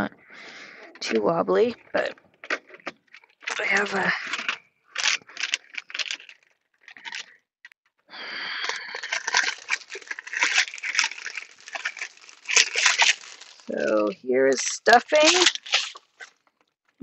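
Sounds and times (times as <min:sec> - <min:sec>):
plastic packaging crinkling: 0:02.0 - 0:07.4, 0:08.6 - 0:16.7
plastic basket scraping: 0:09.0 - 0:14.2.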